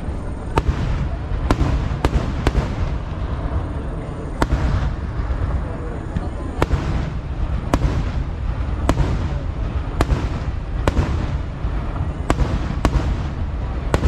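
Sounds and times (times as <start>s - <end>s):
fireworks bangs: 0.0s - 14.0s
rumble and crackle of explosions: 0.0s - 14.0s.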